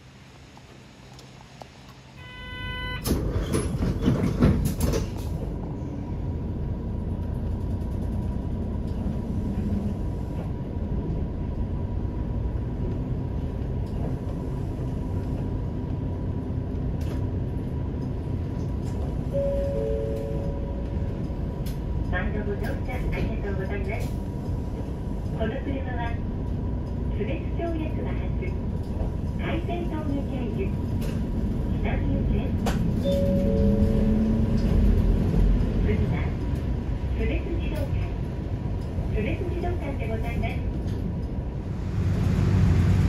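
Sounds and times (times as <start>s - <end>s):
moving vehicle rumble: 0.0s - 43.0s
brief beep: 2.2s - 3.1s, 19.4s - 20.8s, 33.0s - 34.1s.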